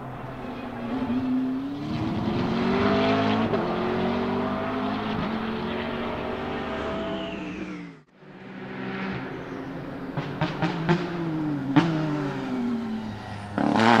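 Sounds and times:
race car accelerating: 0.0s - 14.0s.

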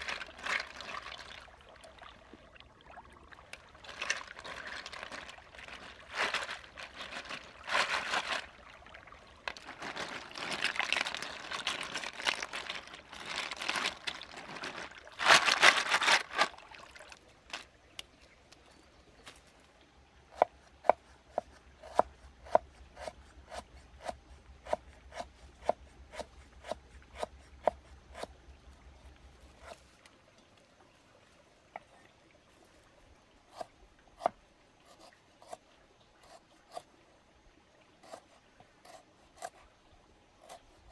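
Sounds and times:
snail shells scrubbed in water: 0.0s - 1.6s, 3.6s - 8.7s, 9.4s - 17.6s.

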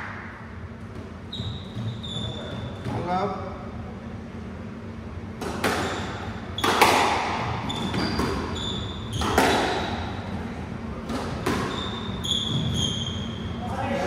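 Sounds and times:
shoes squeaking on wooden floor: 1.3s - 3.0s, 7.5s - 9.9s, 11.4s - 13.5s
squash racket and ball smacks: 5.4s - 8.5s, 9.2s - 10.0s, 11.0s - 11.8s.

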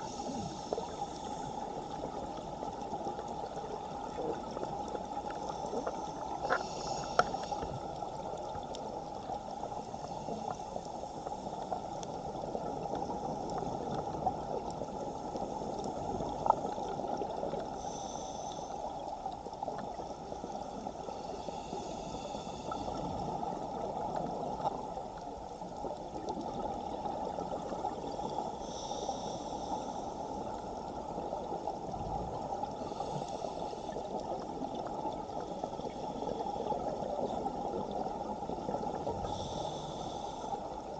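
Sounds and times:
scuba regulator breaths: 0.0s - 2.7s, 5.2s - 16.8s, 17.5s - 19.4s, 20.0s - 23.6s, 28.1s - 31.2s, 32.6s - 34.6s, 39.0s - 40.9s.

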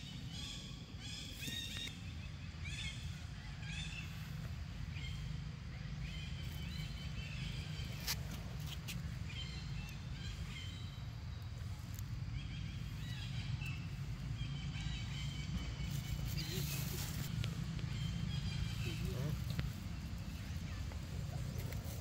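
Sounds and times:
low rumble: 9.1s - 22.0s.

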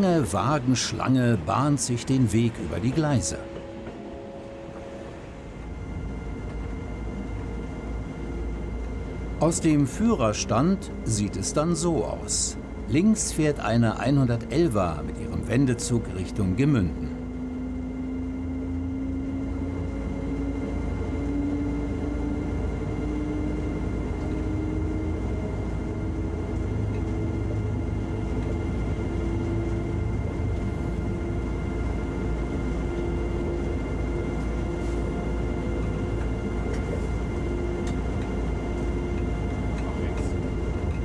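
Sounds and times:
train rumble: 0.0s - 41.0s
rising motor whine: 15.3s - 41.0s.

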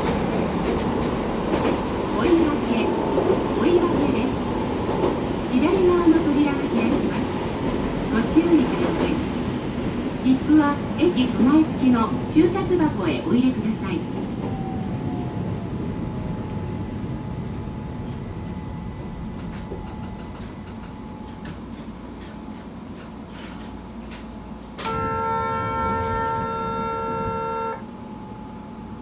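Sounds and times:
electric train rumbling on rails: 0.0s - 29.0s
train horn chord: 24.8s - 28.0s.

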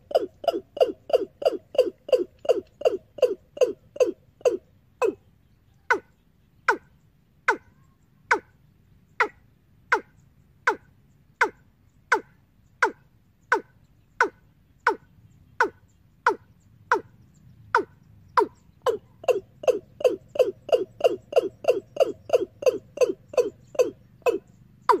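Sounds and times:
bird lure call over loudspeakers: 0.0s - 8.6s, 9.2s - 25.0s.

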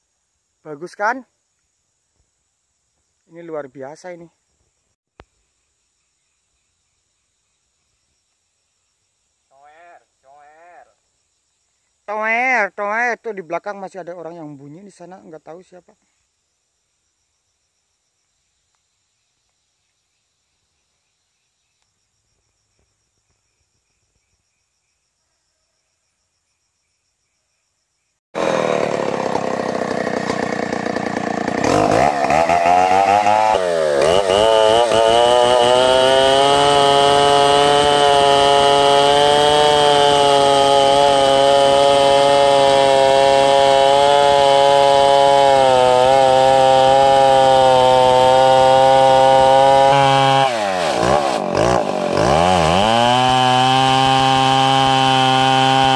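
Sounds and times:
chainsaw cutting wood at high revs: 28.4s - 55.9s.

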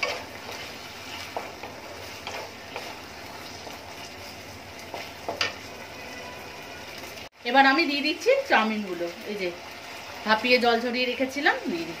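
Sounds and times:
wooden spatula scraping a pan: 0.0s - 7.2s
vegetables sizzling in a wok: 0.0s - 12.0s.

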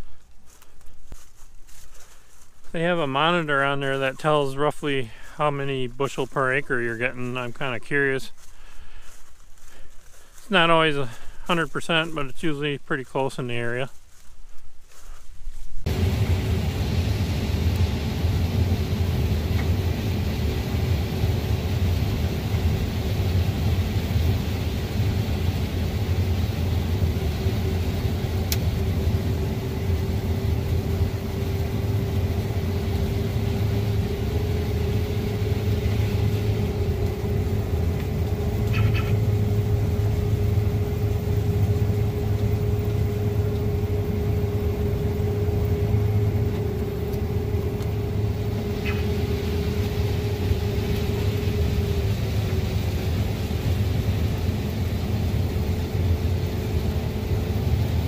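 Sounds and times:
combine harvester engine drone: 0.0s - 14.2s, 15.9s - 58.0s
steady machinery whine: 15.8s - 58.0s.

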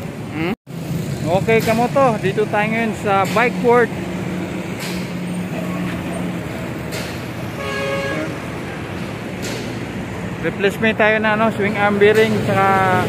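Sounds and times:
road traffic: 0.0s - 13.0s
vehicle horn toot: 7.6s - 8.5s.

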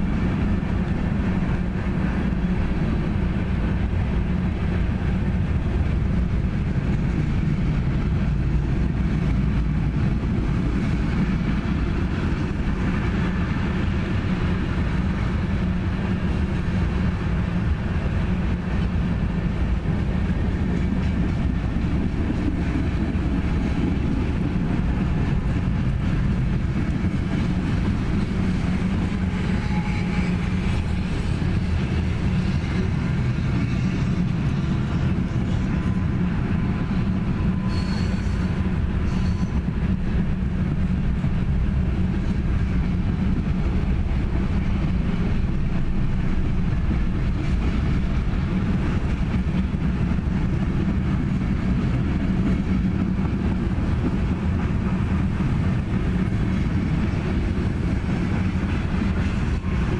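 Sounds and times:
freight train rumbling on rails: 0.0s - 59.9s
high wheel squeal: 29.3s - 30.5s, 37.4s - 39.7s.

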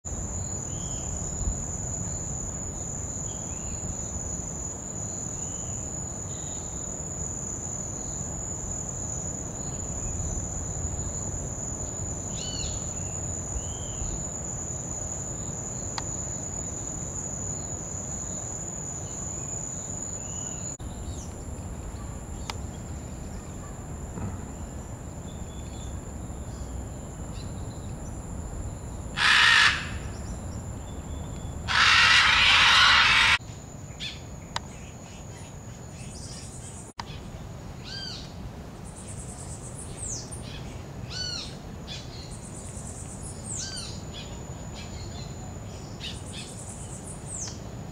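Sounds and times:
high-pitched insect drone: 27.3s - 33.4s.

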